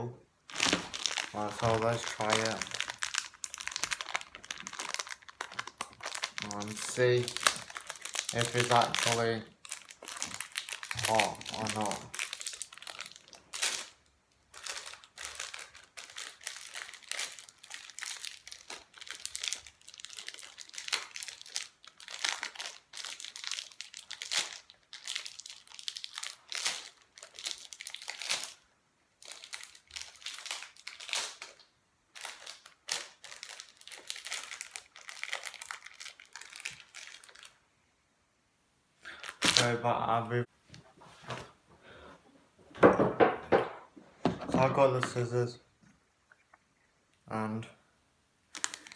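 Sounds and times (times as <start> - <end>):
plastic wrapper crinkling: 0.4 - 37.7, 39.1 - 39.9, 48.5 - 48.9.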